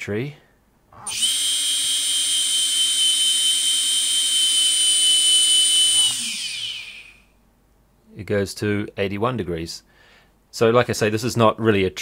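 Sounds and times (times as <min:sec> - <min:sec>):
quadcopter motors whining: 0:01.0 - 0:07.2.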